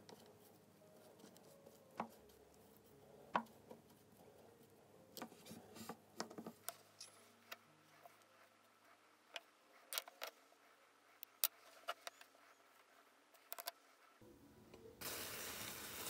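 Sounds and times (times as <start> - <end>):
small hard parts clicking: 13.4 - 13.8.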